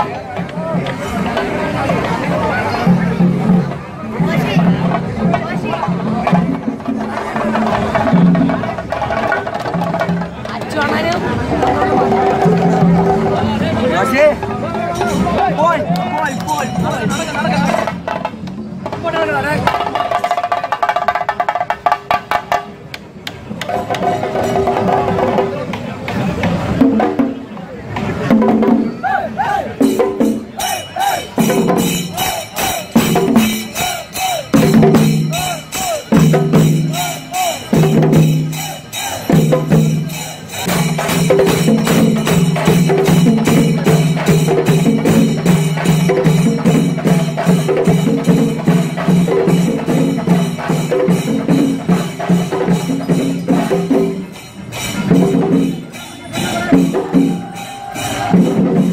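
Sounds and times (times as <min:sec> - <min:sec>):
drums and cymbals playing: 0:00.0 - 0:58.9
wind instrument playing: 0:30.5 - 0:40.8.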